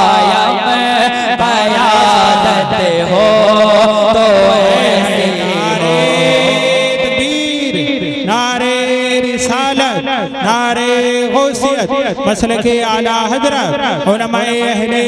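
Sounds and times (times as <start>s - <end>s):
man singing melismatically: 0.0s - 15.0s.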